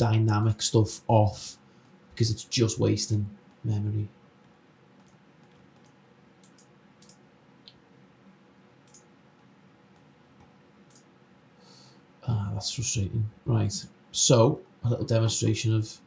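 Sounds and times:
computer mouse clicks: 4.4 - 7.8, 8.8 - 11.1.

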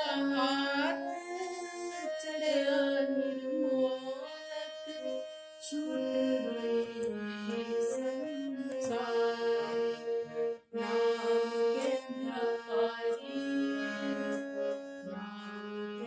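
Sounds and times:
harmonium playing a melody: 0.0 - 16.0.

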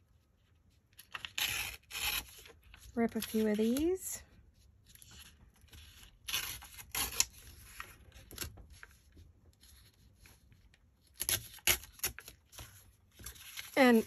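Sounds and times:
paper tearing: 1.0 - 2.6, 5.1 - 8.5, 11.0 - 14.0.

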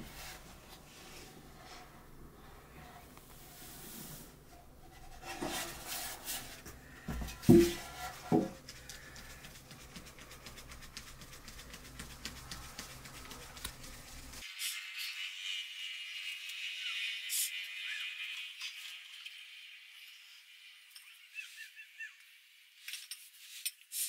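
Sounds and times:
flour patter through sieve: 3.3 - 14.5
sieve knocking: 6.6 - 14.4.

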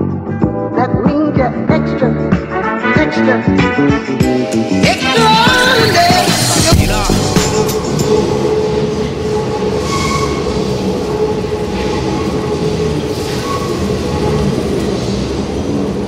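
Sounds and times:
train hum: 4.3 - 16.0
train wheels rumbling on rails: 5.4 - 16.0
high brake squeal: 7.6 - 14.6.

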